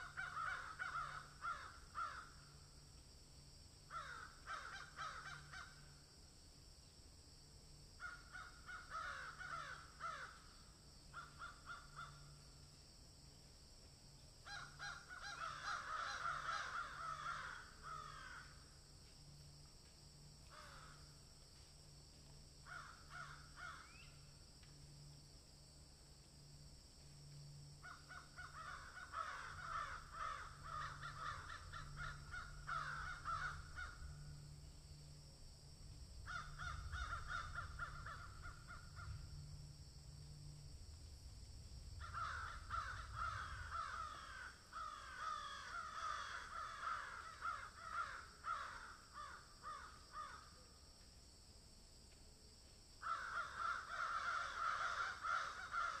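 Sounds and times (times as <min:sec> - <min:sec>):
faint low hum: 0:00.0 - 0:49.0
animal calls of repeated notes: 0:27.8 - 0:34.8.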